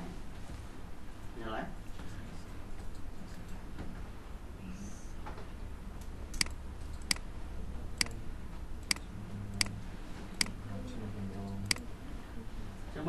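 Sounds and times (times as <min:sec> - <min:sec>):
low steady hum: 0:00.0 - 0:13.0
computer mouse clicking: 0:06.3 - 0:07.3, 0:10.4 - 0:10.6.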